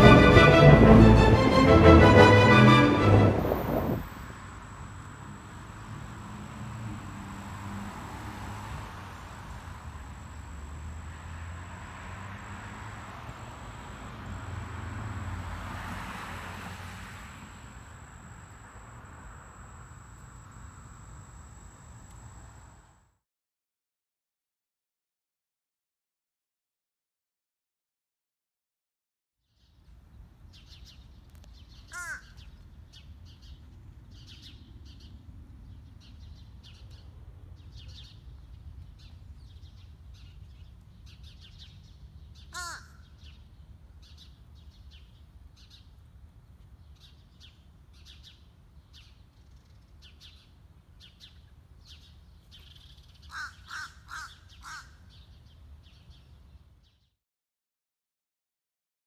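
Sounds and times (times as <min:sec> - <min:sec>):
steady low rumble: 0:00.0 - 0:05.0
crow cawing: 0:31.9 - 0:32.4, 0:42.5 - 0:43.0, 0:53.3 - 0:55.0.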